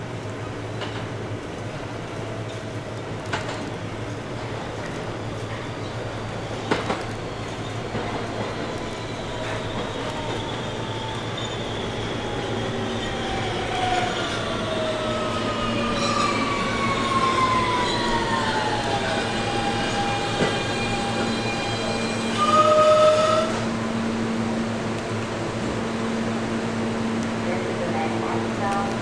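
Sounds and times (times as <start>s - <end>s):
steady train rumble: 0.0s - 29.0s
subway train motors whining: 0.0s - 29.0s
train horn note: 22.3s - 23.7s.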